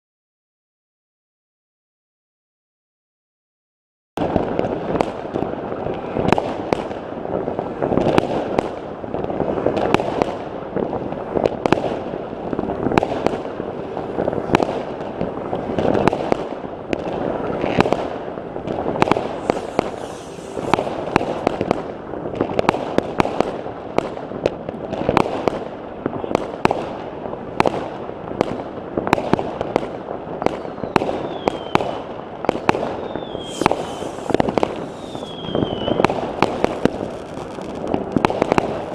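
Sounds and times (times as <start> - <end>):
distant firework bursts: 4.2 - 38.9
fireworks bangs: 4.2 - 38.9
falling firework whistles: 18.9 - 21.8, 30.5 - 38.2.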